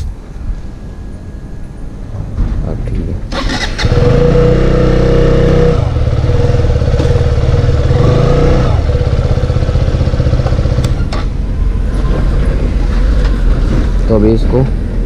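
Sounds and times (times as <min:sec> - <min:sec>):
motorcycle engine idling: 0:05.5 - 0:11.1.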